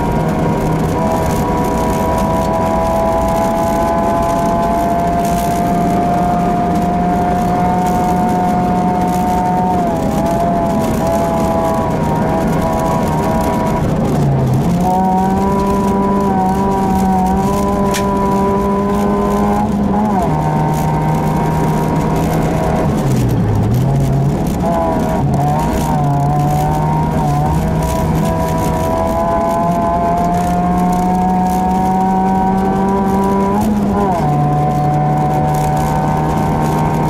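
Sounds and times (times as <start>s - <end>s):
car engine running hard: 0.0s - 37.0s.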